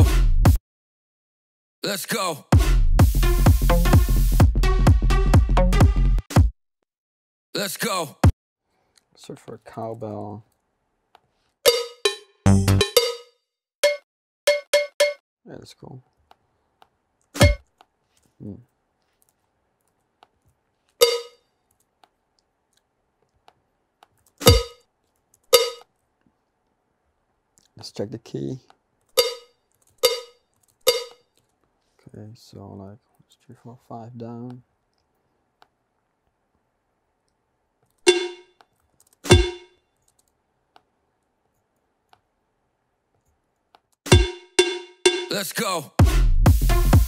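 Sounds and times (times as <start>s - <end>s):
cowbell hits: 11.7s - 15.2s, 21.0s - 21.4s, 24.5s - 24.8s, 25.6s - 25.8s, 29.2s - 31.2s, 38.1s - 38.6s, 39.3s - 39.7s, 44.1s - 45.4s.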